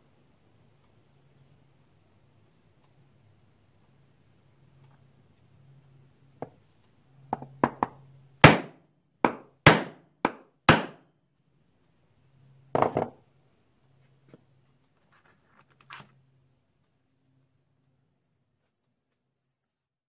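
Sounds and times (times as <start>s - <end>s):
hammer tapping metal punch: 7.3s - 11.0s.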